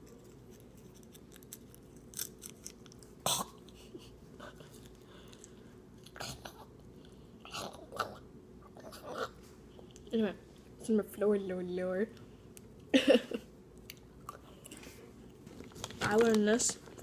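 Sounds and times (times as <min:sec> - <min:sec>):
popcorn crunching while chewing: 0:00.0 - 0:03.8.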